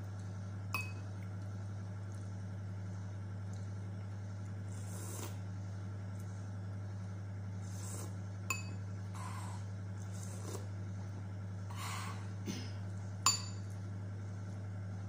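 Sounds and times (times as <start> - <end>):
low steady hum: 0.0 - 15.0
soft eating noises: 0.0 - 15.0
metal spoon clinking on ceramic dish: 8.5 - 8.8, 13.3 - 13.6.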